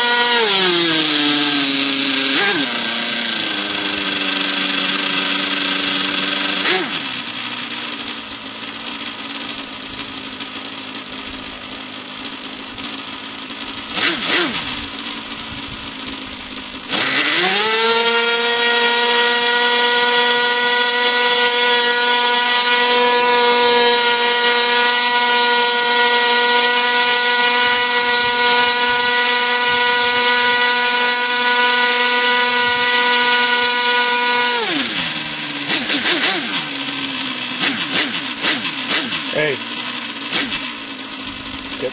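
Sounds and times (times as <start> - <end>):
model engine whining: 0.0 - 41.9.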